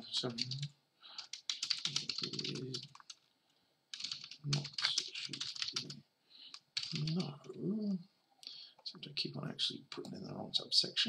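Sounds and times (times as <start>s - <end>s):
typing on keyboard: 0.2s - 3.3s, 3.9s - 7.4s.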